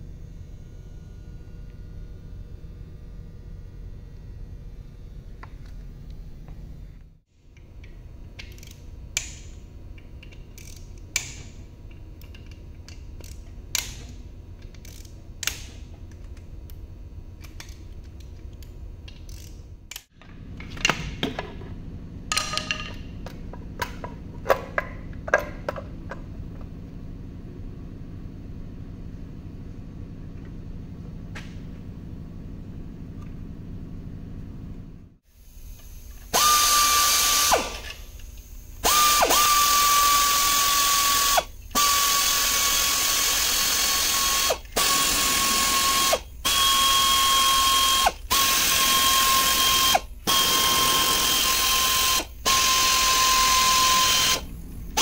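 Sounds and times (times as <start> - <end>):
low shop hum: 0.0 - 55.0.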